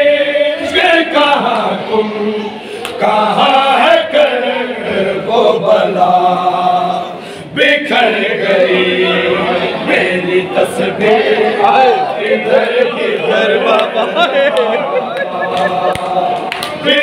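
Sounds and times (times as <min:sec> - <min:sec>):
men chanting unaccompanied: 0:00.0 - 0:17.0
solo reciter chanting: 0:00.0 - 0:17.0.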